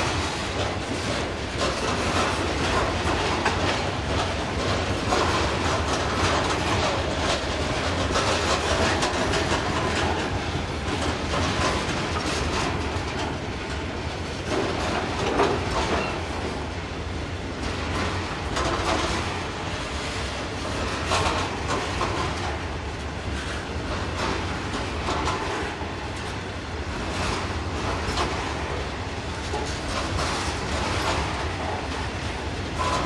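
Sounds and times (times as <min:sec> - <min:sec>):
freight train wheels clattering: 0:00.0 - 0:33.0.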